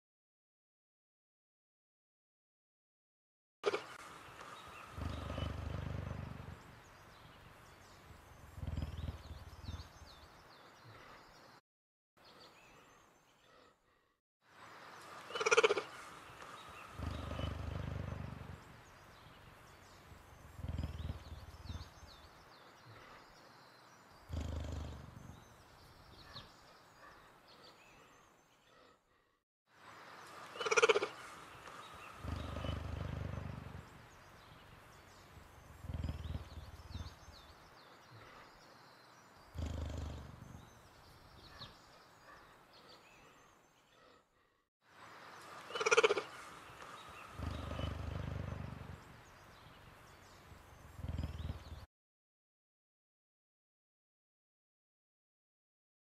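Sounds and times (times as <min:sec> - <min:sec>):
big cat growling: 0:04.4 - 0:06.8, 0:07.8 - 0:10.2, 0:16.8 - 0:18.8, 0:20.2 - 0:22.2, 0:24.3 - 0:25.5, 0:31.7 - 0:34.6, 0:35.5 - 0:37.5, 0:39.5 - 0:40.8, 0:45.7 - 0:49.2, 0:50.7 - 0:51.9.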